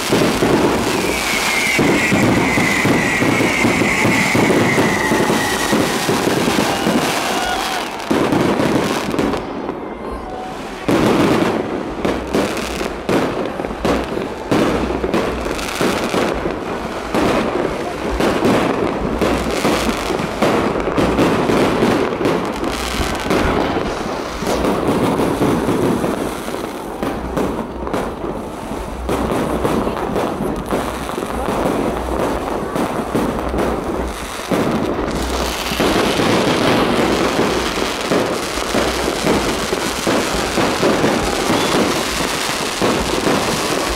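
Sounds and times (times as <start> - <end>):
fireworks shells bursting: 0.0 - 9.6, 33.1 - 43.9.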